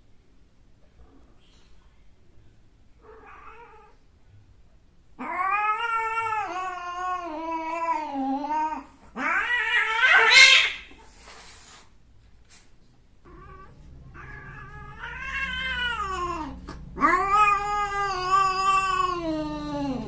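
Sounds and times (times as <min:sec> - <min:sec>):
cats yowling: 0:03.0 - 0:04.0, 0:05.2 - 0:10.9, 0:13.2 - 0:20.0
cat screeching: 0:05.2 - 0:10.9, 0:13.3 - 0:20.0.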